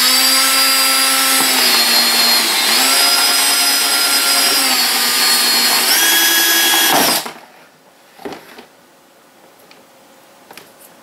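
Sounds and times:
cordless drill whining: 0:00.0 - 0:07.4.

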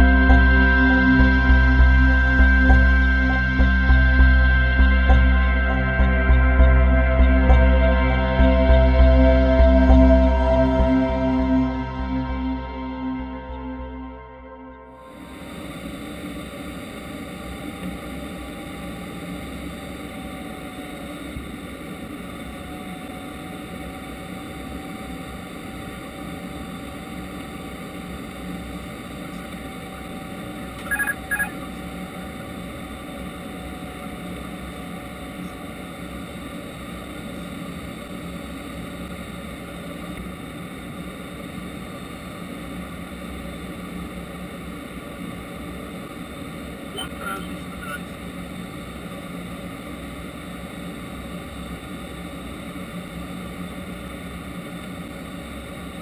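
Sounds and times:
cockpit airflow and hum: 0:00.0 - 0:56.0
short electronic warning tones: 0:30.7 - 0:31.8, 0:47.0 - 0:48.1.

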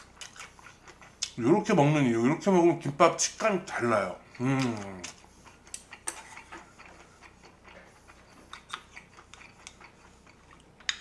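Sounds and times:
mouth clicks while chewing: 0:04.6 - 0:11.0.

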